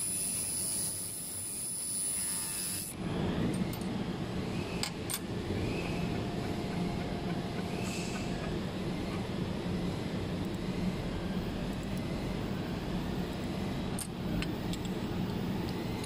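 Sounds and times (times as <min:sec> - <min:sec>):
laser welder high whine: 0:00.0 - 0:03.0
low rough machine noise: 0:00.0 - 0:16.0.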